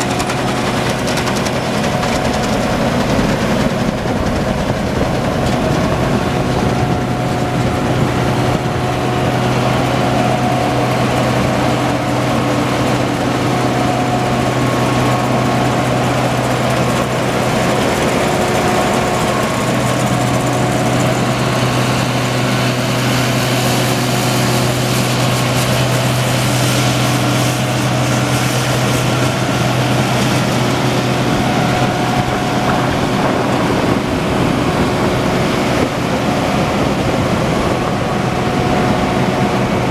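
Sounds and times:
diesel engine running: 0:00.0 - 0:39.9
whining tones: 0:29.0 - 0:39.9.

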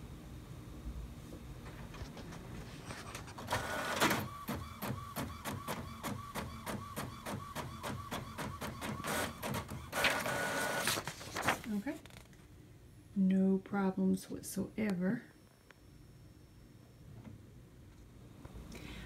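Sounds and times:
printer whirring taking up paper: 0:02.9 - 0:11.8
printer clicking and whirring: 0:03.2 - 0:11.7.

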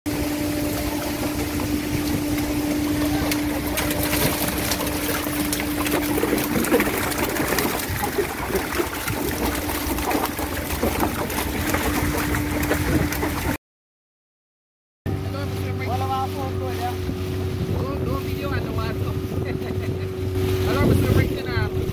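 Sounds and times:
fish flapping in boat: 0:00.1 - 0:13.6
steady motor hum: 0:00.1 - 0:13.6, 0:15.1 - 0:21.9
water splashing: 0:00.1 - 0:13.6, 0:15.1 - 0:21.9.

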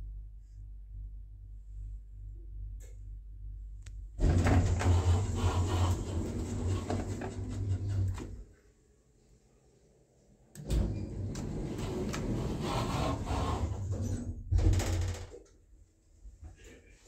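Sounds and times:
lift doors sliding: 0:04.2 - 0:08.5, 0:10.6 - 0:14.5
rumbling movement noise: 0:04.2 - 0:08.6, 0:10.7 - 0:15.1.

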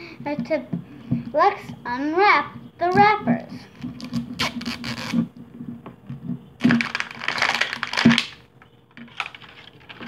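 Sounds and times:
crinkly wrapper tearing: 0:06.6 - 0:08.4, 0:09.1 - 0:10.0.

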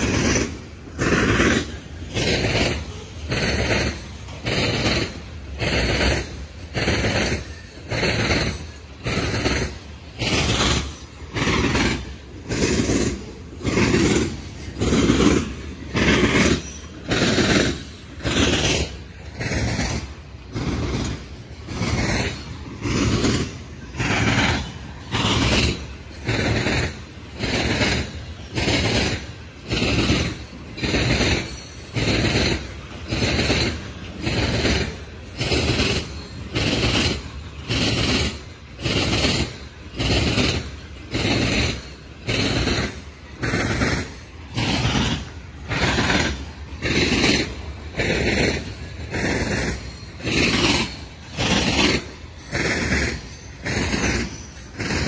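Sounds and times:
freight train wheels clattering on rails: 0:00.0 - 0:55.0.

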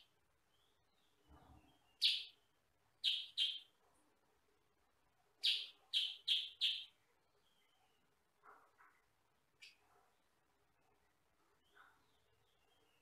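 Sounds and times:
bird chirping loudly: 0:02.0 - 0:02.3, 0:03.0 - 0:03.7, 0:05.4 - 0:06.9.

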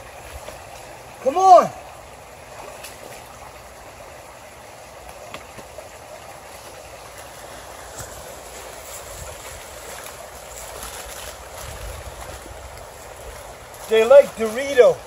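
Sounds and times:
creek water rushing: 0:00.0 - 0:15.0
feet wading splashes: 0:05.0 - 0:15.0.

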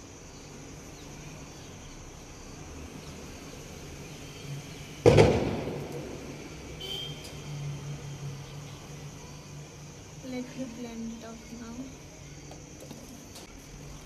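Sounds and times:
sudden loud bang: 0:05.0 - 0:06.4.

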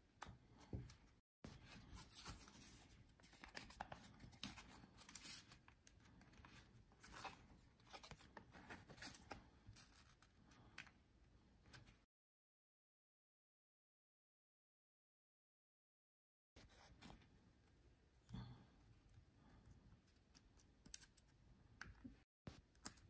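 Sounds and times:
small clicks and scratches: 0:19.0 - 0:23.0.

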